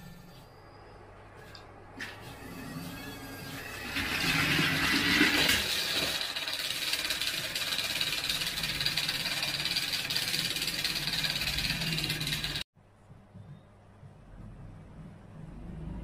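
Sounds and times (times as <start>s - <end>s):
toy train wheels rattling on rails: 6.2s - 12.6s.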